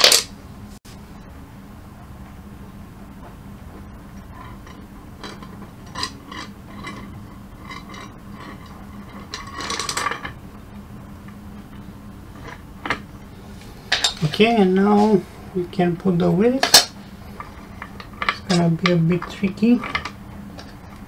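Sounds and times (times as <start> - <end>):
faint steady hum: 0.0 - 21.0
bolts rattling: 16.6 - 20.8.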